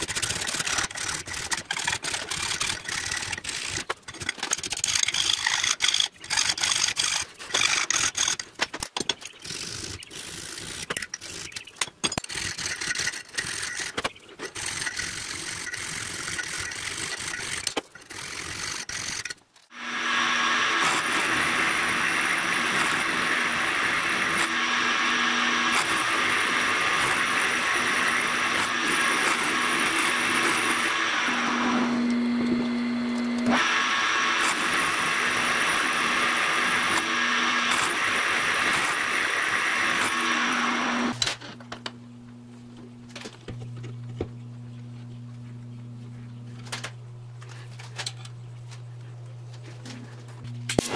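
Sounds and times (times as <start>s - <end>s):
hand file scraping metal: 0.0s - 8.6s, 9.2s - 19.4s
milling machine cutting metal: 12.2s - 41.2s.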